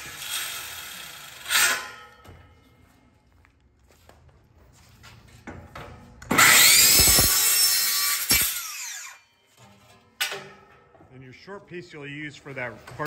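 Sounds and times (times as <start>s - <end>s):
circular saw cutting metal: 0.0s - 2.0s, 6.3s - 9.2s.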